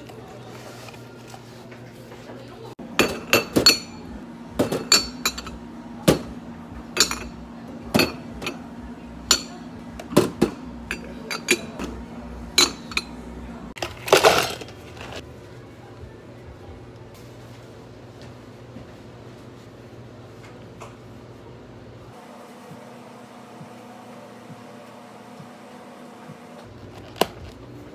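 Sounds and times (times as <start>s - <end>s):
dishes and glassware clinking: 2.9s - 14.7s.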